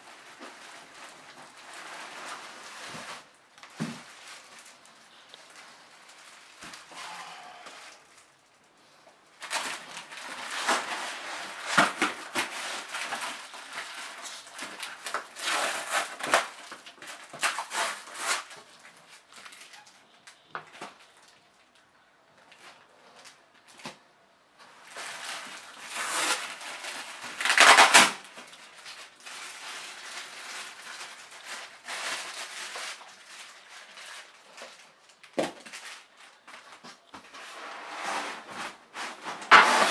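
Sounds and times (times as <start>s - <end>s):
plastic wrap and papers crinkling: 0.0s - 39.9s.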